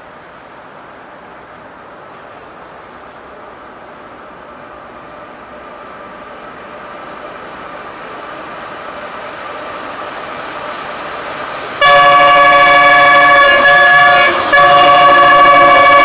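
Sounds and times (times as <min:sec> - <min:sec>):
freight train rolling: 0:00.0 - 0:16.0
locomotive horn: 0:11.8 - 0:16.0.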